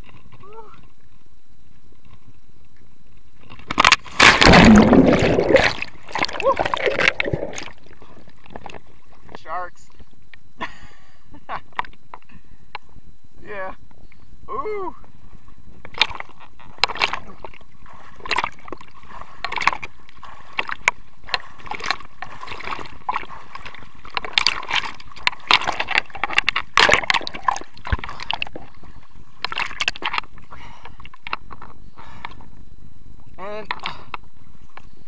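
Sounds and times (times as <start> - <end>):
water sloshing and splashing: 3.4 - 10.1, 15.8 - 31.7.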